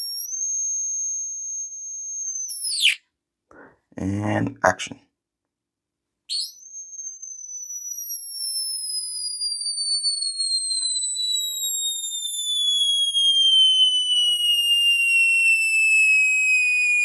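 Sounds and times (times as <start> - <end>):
electronic tone sliding down: 2.1 - 3.0.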